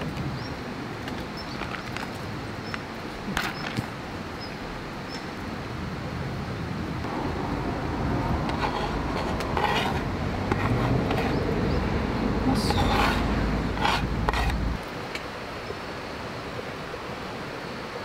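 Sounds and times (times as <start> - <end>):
rain hissing: 2.1 - 18.0.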